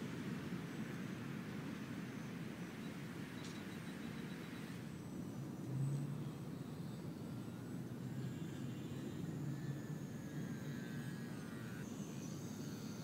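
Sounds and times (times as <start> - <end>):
model plane motor whining: 0.0 - 13.0.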